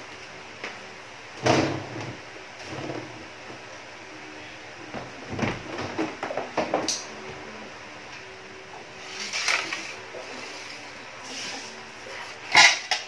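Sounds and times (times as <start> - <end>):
aquarium parts being handled: 12.5 - 13.0.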